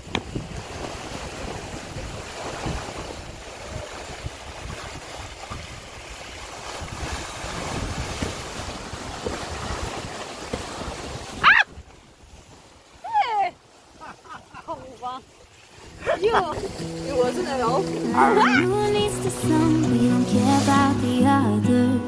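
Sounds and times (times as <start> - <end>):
wind buffeting microphone: 0.0 - 12.6
water rushing past hulls: 0.0 - 22.0.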